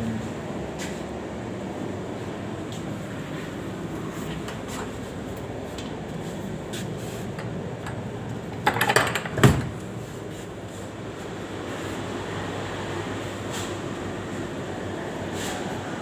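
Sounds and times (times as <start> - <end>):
steady room hum: 0.0 - 16.0.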